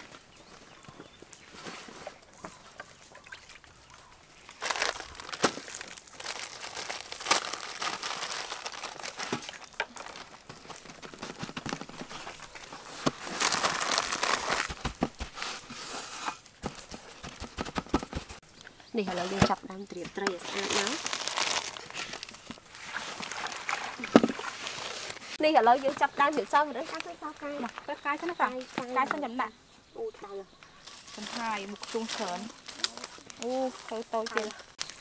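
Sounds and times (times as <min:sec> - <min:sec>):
plastic bags crinkling: 0:04.4 - 0:15.4, 0:20.2 - 0:25.4, 0:30.8 - 0:35.0.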